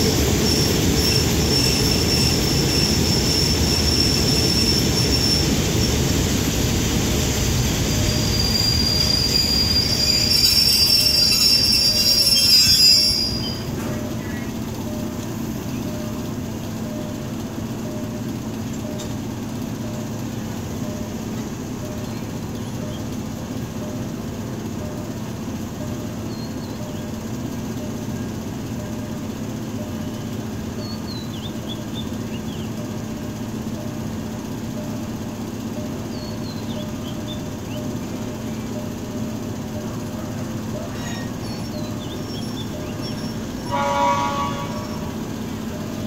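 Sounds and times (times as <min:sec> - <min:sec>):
diesel locomotive idling: 0:00.0 - 0:46.0
bird chirping: 0:41.2 - 0:43.4.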